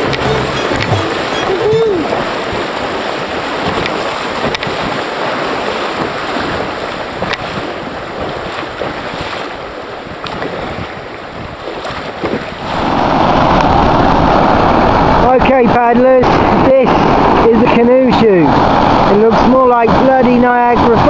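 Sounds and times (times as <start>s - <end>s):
river water moving around canoe: 0.0s - 15.6s
wind on microphone: 0.0s - 21.0s.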